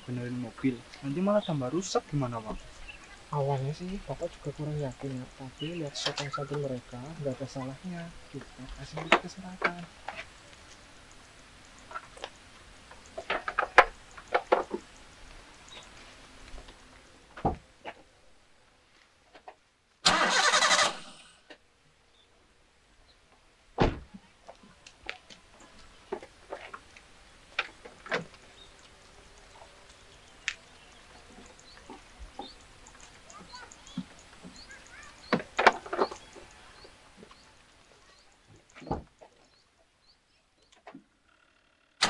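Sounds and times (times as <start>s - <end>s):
sharp clicks and light knocks: 8.4s - 15.1s.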